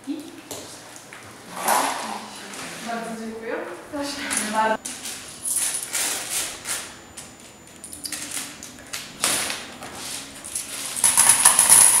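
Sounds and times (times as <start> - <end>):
coins clinking on table: 11.0 - 12.0.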